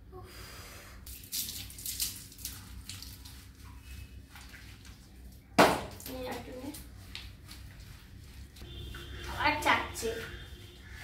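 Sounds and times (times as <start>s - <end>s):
water splashing and pouring: 1.1s - 6.3s.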